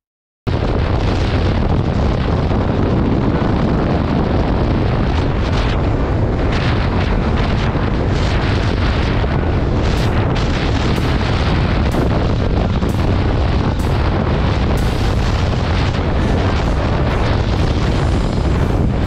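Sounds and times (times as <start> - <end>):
wind buffeting microphone: 0.5 - 19.0.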